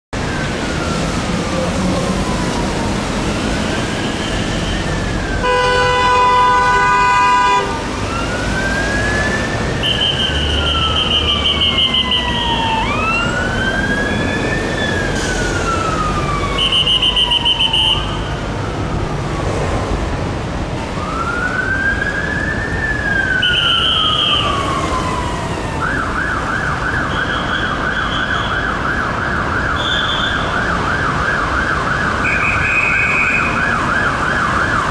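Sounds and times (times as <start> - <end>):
passing traffic: 0.2 - 34.9
sirens wailing: 0.2 - 34.9
vehicle horn: 5.4 - 7.8
siren fast yelp: 8.2 - 18.2, 22.2 - 34.9.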